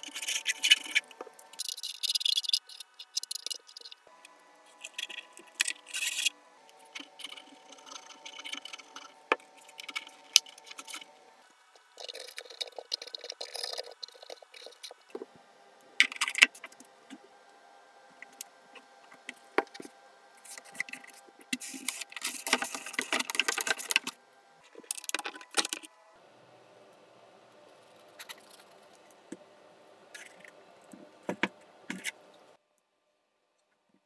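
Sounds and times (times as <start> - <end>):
plastic rubbing and scraping: 0.0 - 4.1, 4.7 - 15.4, 18.2 - 25.9, 30.1 - 32.5
plastic parts clicking: 20.5 - 25.9.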